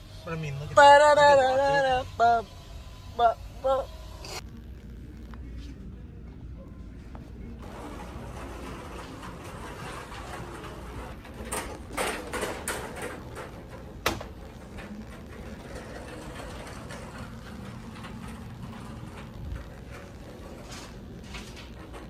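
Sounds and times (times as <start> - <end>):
store background hum: 0.0 - 22.0.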